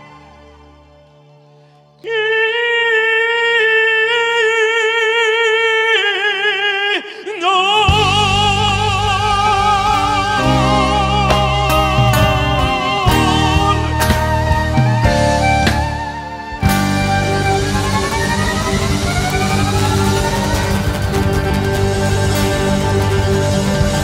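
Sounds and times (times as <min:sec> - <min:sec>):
man singing operatically: 0:02.0 - 0:16.6
band with bass and drums: 0:07.9 - 0:24.0.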